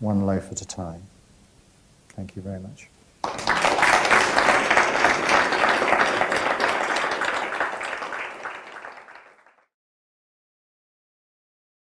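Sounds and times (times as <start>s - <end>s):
audience applauding: 3.2s - 9.7s.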